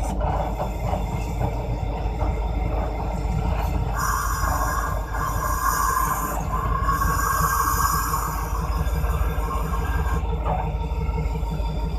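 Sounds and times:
diesel locomotive rumbling: 0:00.0 - 0:11.9
high-pitched hissing: 0:04.0 - 0:10.2.

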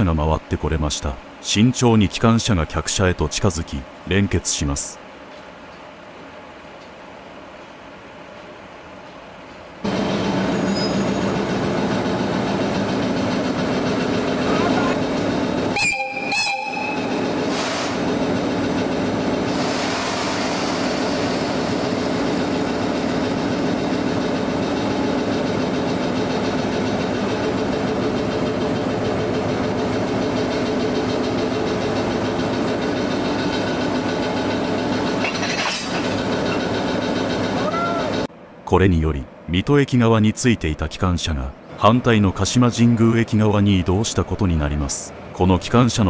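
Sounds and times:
locomotive engine hum: 0:04.7 - 0:38.6
brief high tone: 0:15.8 - 0:17.2.

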